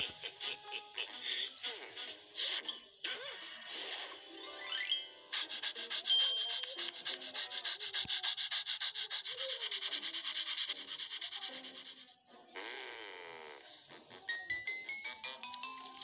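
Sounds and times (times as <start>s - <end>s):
rapid rasping scraping: 5.4s - 12.2s.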